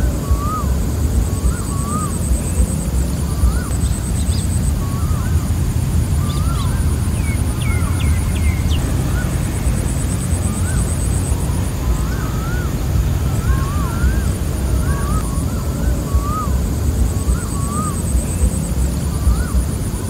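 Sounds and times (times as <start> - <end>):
birds chirping: 0.0 - 20.0
insects trilling: 0.0 - 20.0
low rumble: 0.0 - 20.0
bird whistling falling notes: 6.1 - 19.7.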